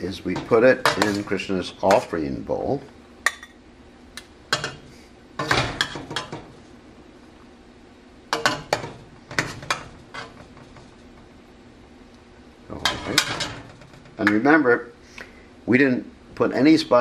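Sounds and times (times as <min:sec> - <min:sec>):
metal spoon scraping a pot: 0:00.4 - 0:02.0, 0:08.4 - 0:10.9.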